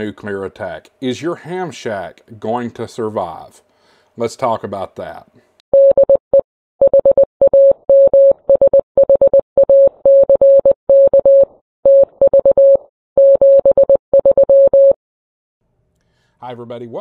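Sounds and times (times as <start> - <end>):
morse code beeps: 5.8 - 15.0.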